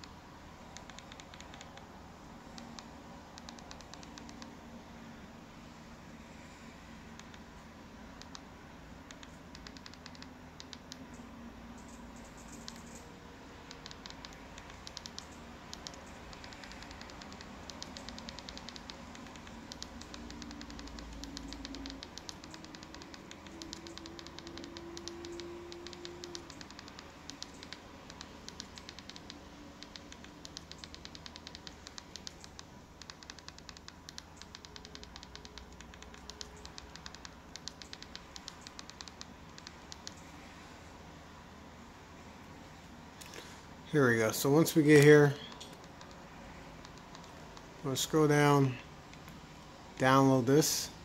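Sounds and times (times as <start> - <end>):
remote buttons clicking: 0.0 - 1.9, 2.5 - 4.6, 7.2 - 7.5, 8.2 - 11.2, 11.8 - 13.1, 13.7 - 40.4, 44.9 - 49.4.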